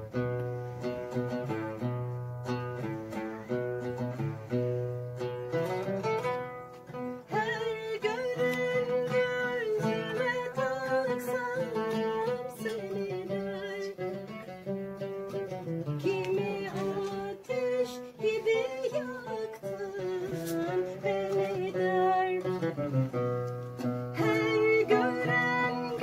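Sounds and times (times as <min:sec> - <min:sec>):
oud plucked: 0:00.0 - 0:26.0
woman singing: 0:06.9 - 0:14.6, 0:15.7 - 0:26.0.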